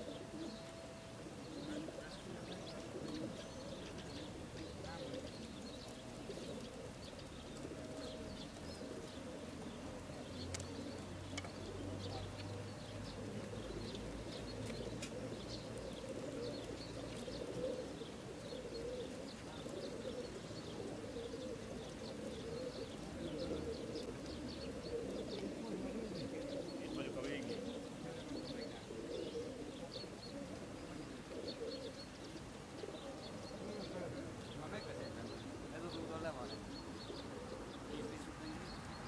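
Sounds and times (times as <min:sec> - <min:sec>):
pigeons cooing: 0:00.0 - 0:39.0
small birds chirping: 0:00.0 - 0:39.0.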